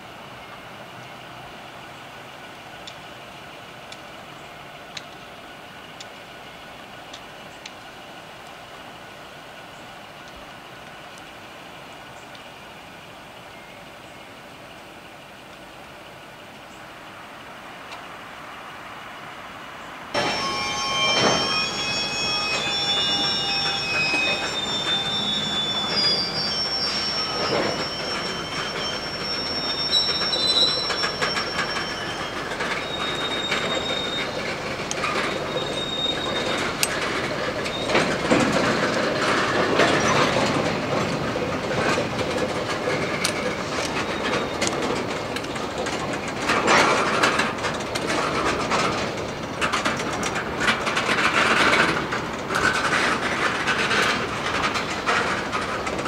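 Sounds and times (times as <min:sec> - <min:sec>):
freight train cars rolling: 0:00.0 - 0:56.0
wheel squeals: 0:20.1 - 0:56.0.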